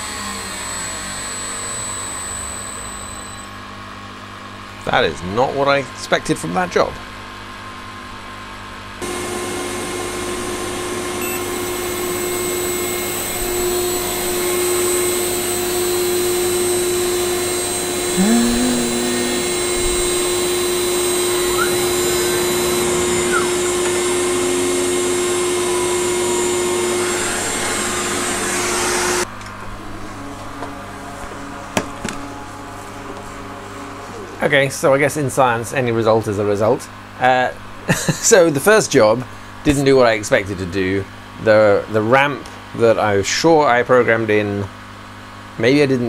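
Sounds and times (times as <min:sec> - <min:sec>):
router spindle whining: 0:00.0 - 0:03.6, 0:11.2 - 0:29.2.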